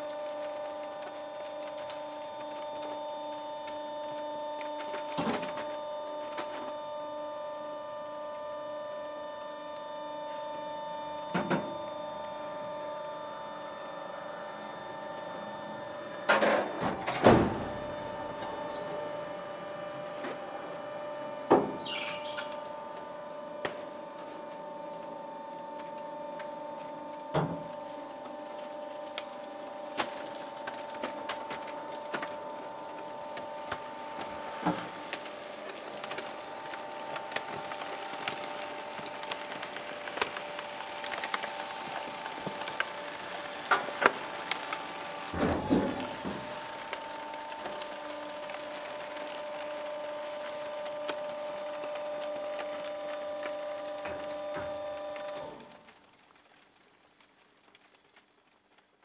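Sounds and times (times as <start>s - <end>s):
plastic cracking and snapping: 0.0s - 6.8s, 22.5s - 59.0s
compactor machine hum: 0.0s - 55.9s.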